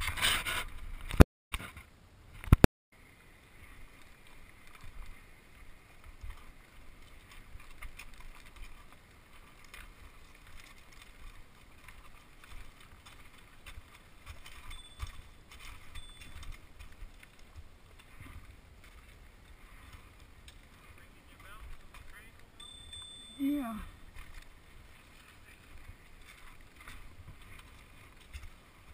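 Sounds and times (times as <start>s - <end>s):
bicycle tyres crunching on gravel: 3.8s - 23.4s, 24.0s - 28.9s
bike rattling over stones: 7.1s - 23.4s, 24.0s - 28.9s.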